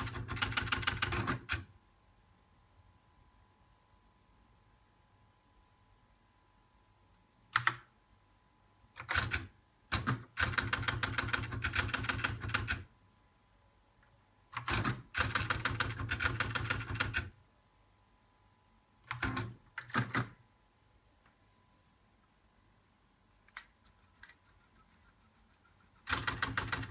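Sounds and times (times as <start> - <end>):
teleprinter clicking: 0.0 - 1.6, 9.0 - 12.8, 14.6 - 17.3, 26.0 - 26.9.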